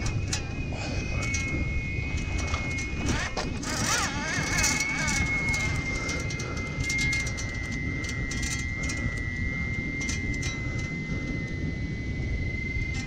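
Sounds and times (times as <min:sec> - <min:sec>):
faint high whine: 0:00.0 - 0:13.0
wind rumble on microphone: 0:00.0 - 0:13.0.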